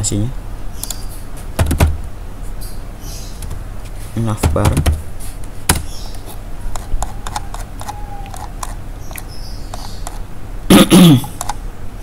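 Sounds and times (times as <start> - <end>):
computer mouse clicks: 6.7 - 10.2.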